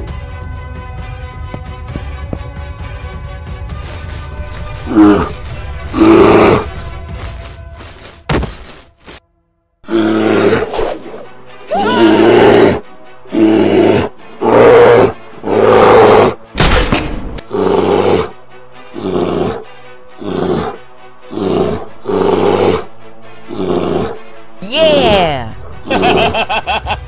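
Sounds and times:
background music: 0:00.0 - 0:27.0
bear roaring: 0:04.7 - 0:07.1, 0:09.8 - 0:10.8, 0:11.8 - 0:16.4, 0:17.4 - 0:24.3.

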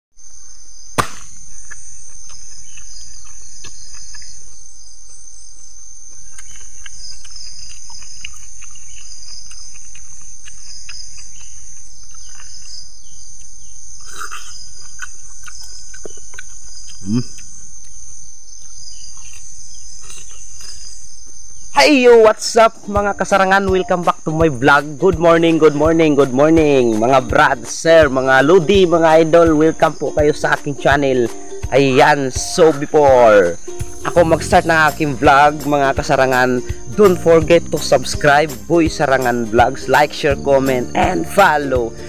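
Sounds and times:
high-pitched insect chorus: 0:00.2 - 0:42.0
sharp click: 0:01.0 - 0:01.8.

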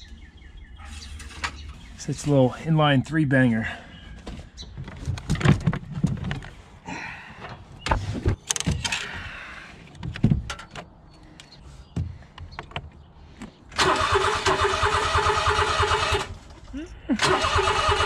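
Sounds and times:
person talking: 0:02.0 - 0:03.8
car battery clunks and knocks: 0:10.0 - 0:10.9
engine starter cranking: 0:13.7 - 0:16.6, 0:17.2 - 0:18.0.

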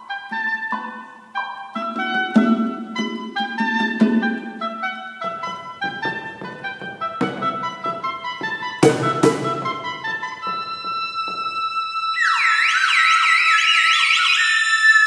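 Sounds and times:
oboe sustained notes: 0:00.0 - 0:15.0
sharp percussion strikes: 0:06.4 - 0:11.8
wavering whistle: 0:09.7 - 0:15.0.

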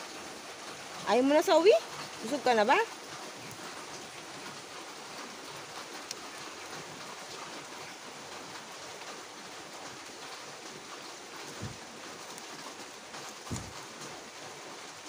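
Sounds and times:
steady rain: 0:00.0 - 0:15.0
low thump: 0:11.6 - 0:11.8, 0:13.5 - 0:13.8.

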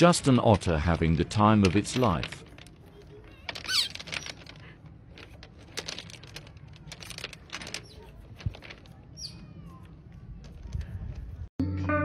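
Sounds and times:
pebbles clicking and clattering: 0:00.2 - 0:09.1.

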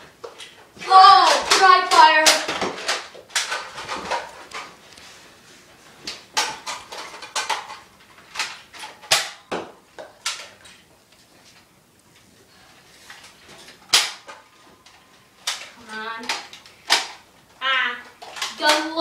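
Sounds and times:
toy blasters clacking and firing: 0:00.9 - 0:04.2, 0:15.4 - 0:17.2, 0:18.2 - 0:19.0.

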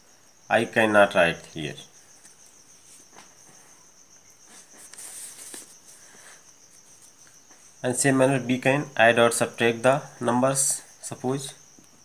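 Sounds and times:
crickets trilling: 0:00.0 - 0:12.0
soft rustle: 0:02.0 - 0:07.8.

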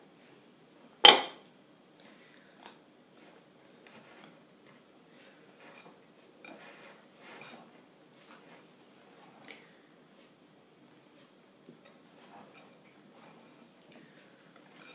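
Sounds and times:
whisk swishing and scraping: 0:03.2 - 0:09.5, 0:11.8 - 0:14.9.

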